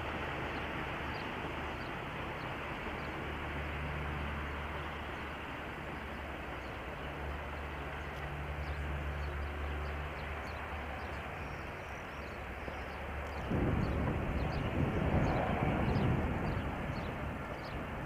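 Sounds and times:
train rumbling past: 0:00.0 - 0:18.0
small birds chirping: 0:06.0 - 0:17.8.

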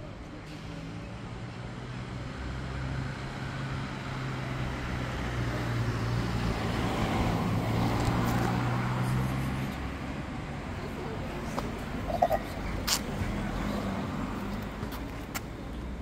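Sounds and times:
traffic noise: 0:00.0 - 0:16.0
vehicle engine humming: 0:03.2 - 0:16.0.

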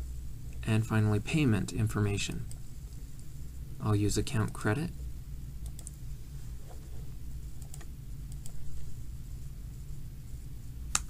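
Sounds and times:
steady low hum: 0:00.0 - 0:11.0
computer mouse clicks: 0:05.6 - 0:06.0, 0:07.6 - 0:08.7.

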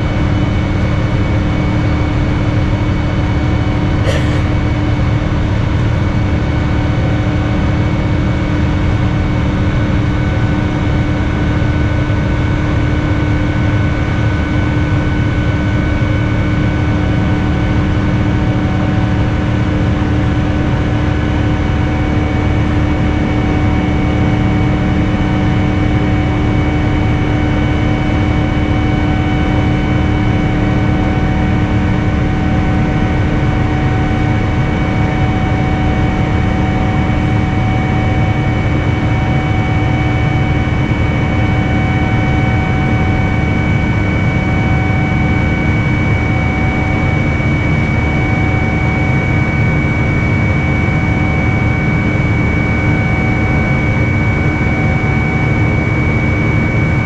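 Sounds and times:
jet engine and airflow rush: 0:00.0 - 0:11.7, 0:24.5 - 0:57.0.

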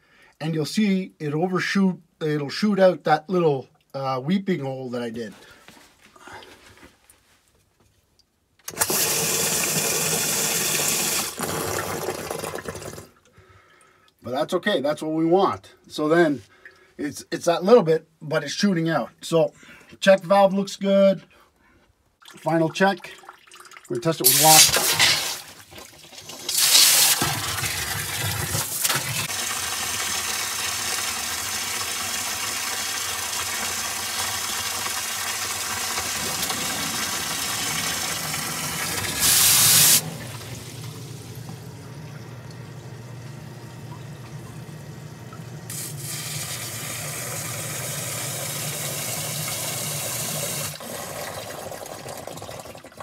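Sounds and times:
sump pump humming: 0:08.7 - 0:13.4, 0:24.2 - 0:52.9
water splashing into pit: 0:24.2 - 0:30.2, 0:33.0 - 0:41.0.

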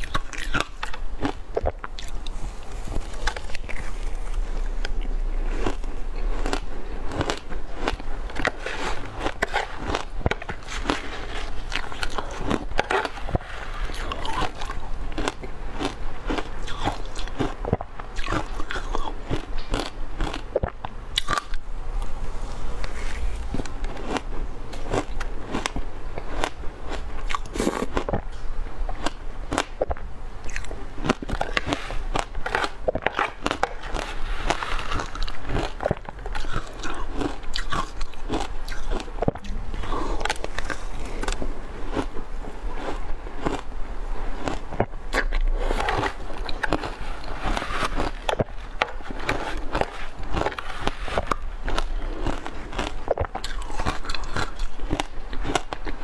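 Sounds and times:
crunching shaved ice: 0:00.0 - 0:21.6, 0:22.8 - 0:28.3, 0:28.9 - 0:43.7, 0:44.4 - 0:56.0.

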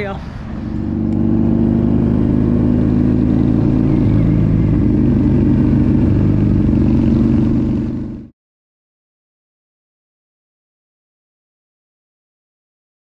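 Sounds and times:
motorcycle engine running: 0:00.4 - 0:08.3.

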